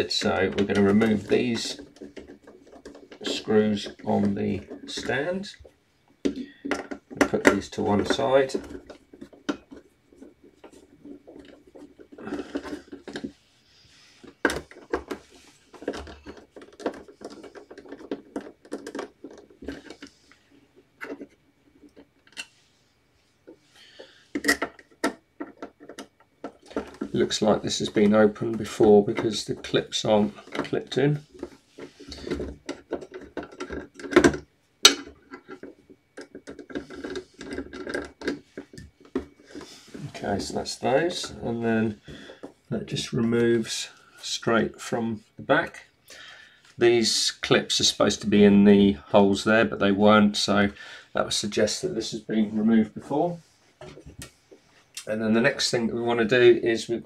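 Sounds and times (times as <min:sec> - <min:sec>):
plastic parts clicking and scraping: 0:00.0 - 0:22.7, 0:23.4 - 0:57.0
hands handling plastic casing: 0:14.2 - 0:20.4, 0:23.4 - 0:42.6.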